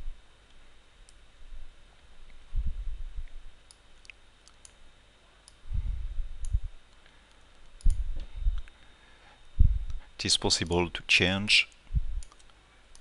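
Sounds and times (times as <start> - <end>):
dull low thumps: 2.5 - 3.4, 5.7 - 6.8, 7.8 - 8.7, 9.6 - 10.0, 11.9 - 12.2
computer mouse clicking: 6.4 - 8.0, 12.2 - 13.0.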